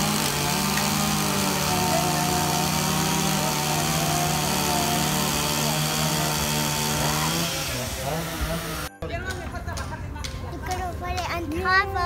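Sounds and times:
chainsaw engine running: 0.0 - 8.9.

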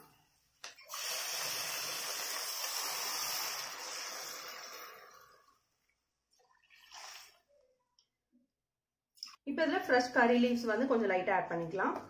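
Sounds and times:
hot water pouring into a pan: 0.8 - 5.6, 6.4 - 7.4.

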